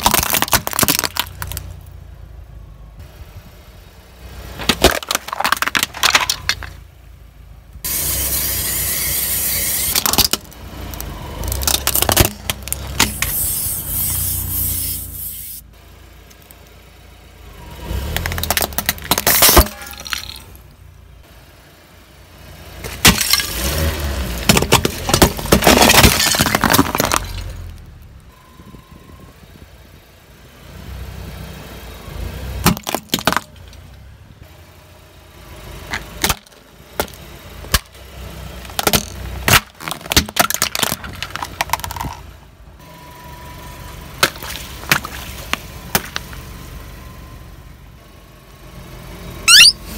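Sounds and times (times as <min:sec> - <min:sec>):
tyre crushing and cracking objects: 0:00.0 - 0:01.8, 0:04.6 - 0:06.8, 0:09.9 - 0:13.4, 0:18.0 - 0:20.6, 0:22.8 - 0:27.9, 0:32.6 - 0:33.8, 0:35.9 - 0:38.0, 0:38.6 - 0:42.2, 0:44.2 - 0:46.4.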